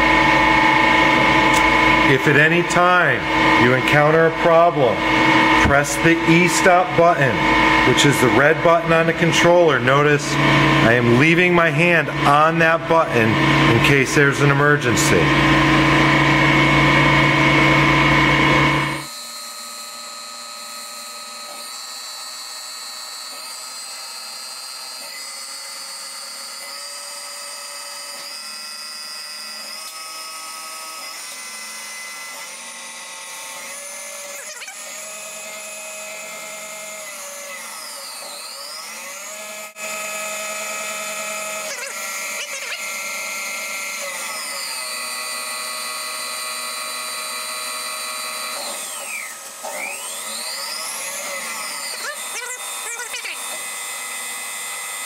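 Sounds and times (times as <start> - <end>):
loud hum: 0.0 - 19.1
lathe machine whine: 0.0 - 55.0.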